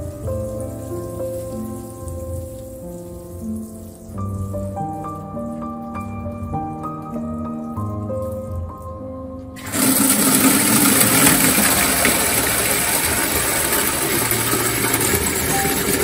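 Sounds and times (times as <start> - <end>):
music with held notes: 0.0 - 16.0
water gushing into metal can: 9.6 - 16.0.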